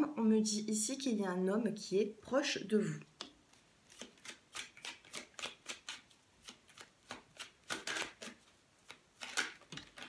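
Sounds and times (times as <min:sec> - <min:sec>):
cards being shuffled: 0:03.2 - 0:10.0.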